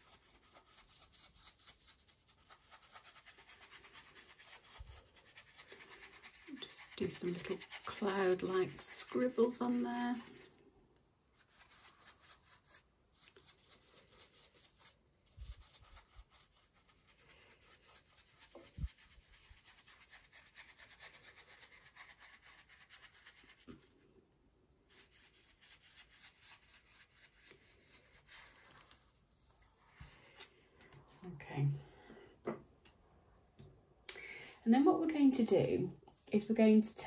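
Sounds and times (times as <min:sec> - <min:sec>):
brush scrubbing on paper: 0:00.0 - 0:10.6, 0:11.3 - 0:23.8, 0:24.9 - 0:30.5.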